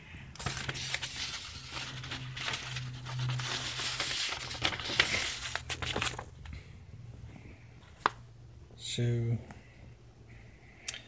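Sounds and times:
paper rustling and crinkling: 0.4s - 6.6s, 7.8s - 8.2s.

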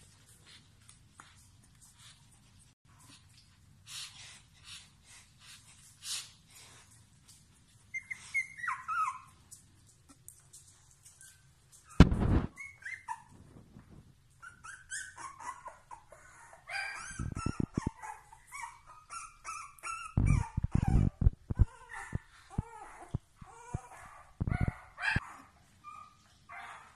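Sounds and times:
puppies whimpering and yipping: 7.8s - 9.5s, 11.0s - 13.5s, 14.3s - 26.9s.

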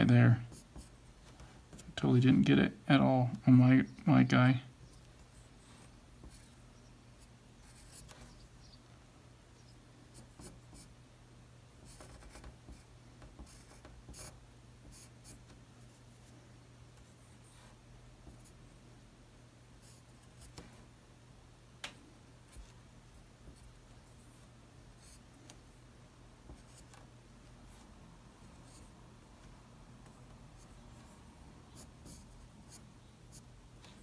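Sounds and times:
pencil scratching on paper: 11.9s - 15.5s, 30.6s - 34.0s.

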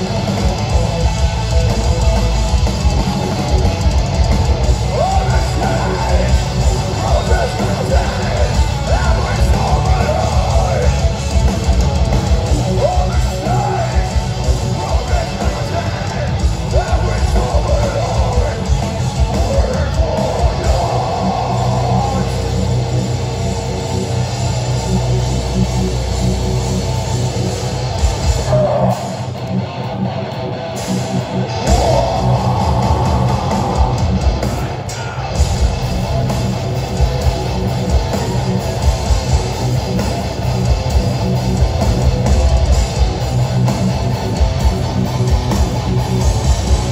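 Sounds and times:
bass and drums: 0.0s - 46.9s
distorted electric guitars: 0.0s - 46.9s
person screaming vocals: 28.4s - 29.3s, 31.6s - 35.4s.

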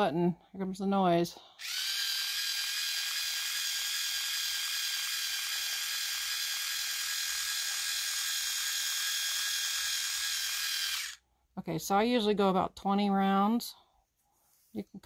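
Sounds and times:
small electric motor whining: 1.6s - 11.2s.

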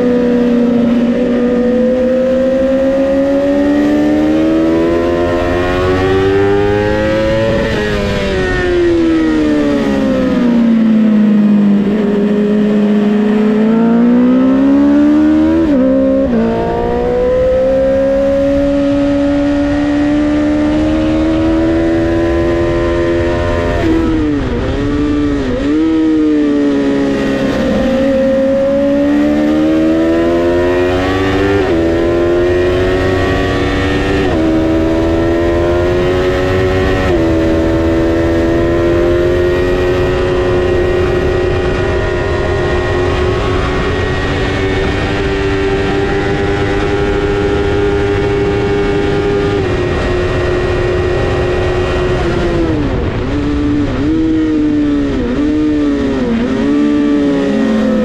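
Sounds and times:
motorcycle engine revving: 0.0s - 58.0s
wind rush: 5.3s - 10.8s, 30.8s - 58.0s.

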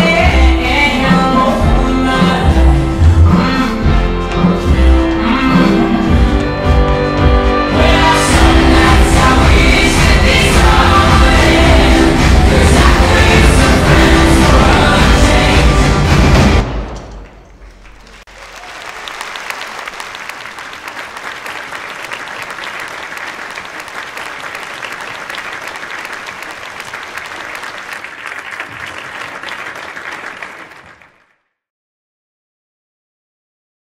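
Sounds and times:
marching band music: 1.6s - 17.3s
audience applauding: 17.2s - 31.4s.

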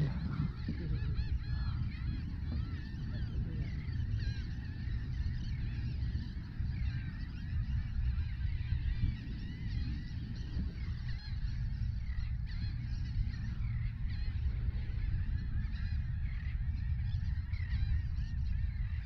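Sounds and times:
flock of birds calling: 0.0s - 19.0s
wind rumble on microphone: 0.0s - 19.0s.

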